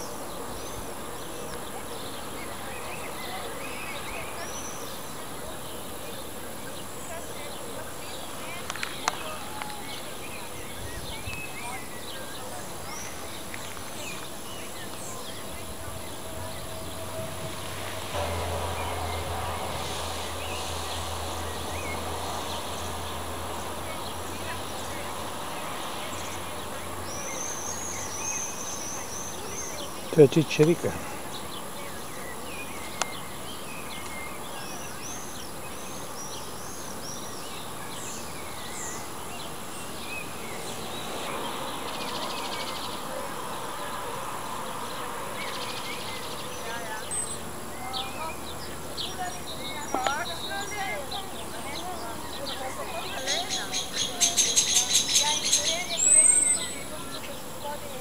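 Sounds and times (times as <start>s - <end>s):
low rumble on microphone: 13.8s - 27.1s.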